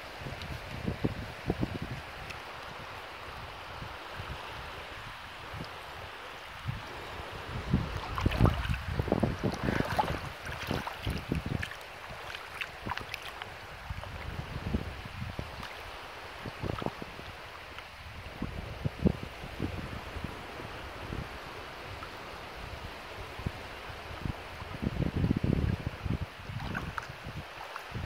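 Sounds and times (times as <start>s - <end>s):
wind buffeting microphone: 0.0s - 15.6s, 16.3s - 28.0s
water lapping on sand: 0.0s - 18.4s, 25.8s - 28.0s.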